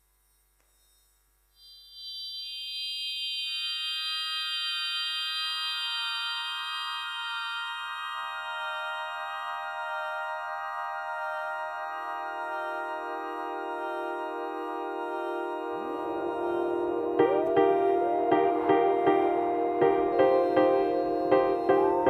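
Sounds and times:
organ-like keyboard chord: 12.4s - 22.0s.

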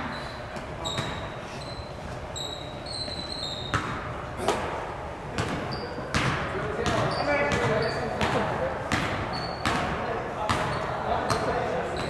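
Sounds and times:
sneakers squeaking on hardwood: 0.0s - 4.7s, 5.4s - 12.0s
basketball bouncing: 0.8s - 1.2s, 3.6s - 4.7s, 5.4s - 11.6s.

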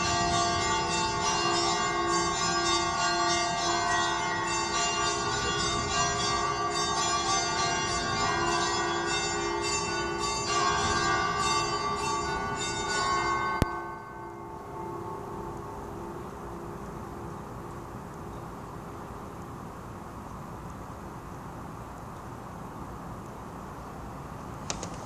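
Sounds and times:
church bells pealing: 0.0s - 17.3s.

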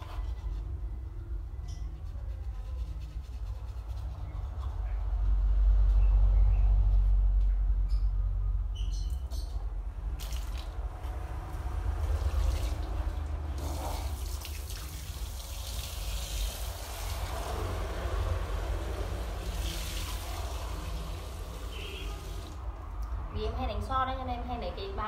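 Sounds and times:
tap water running and splashing: 12.1s - 17.8s, 18.6s - 22.6s.

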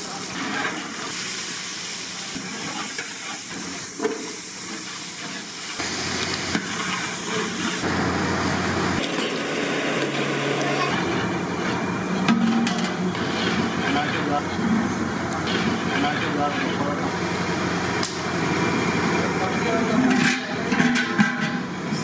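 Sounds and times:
vegetables frying in oil: 0.0s - 9.1s.

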